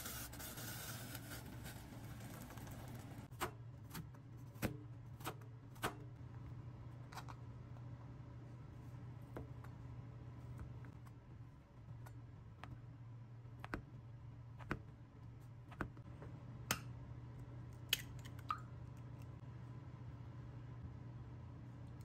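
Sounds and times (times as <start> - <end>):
steady low hum: 1.1 - 22.0.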